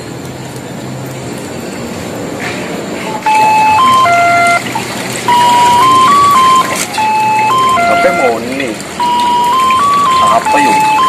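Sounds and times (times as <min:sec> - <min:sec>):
phone ringtone beeping: 0:03.1 - 0:11.0.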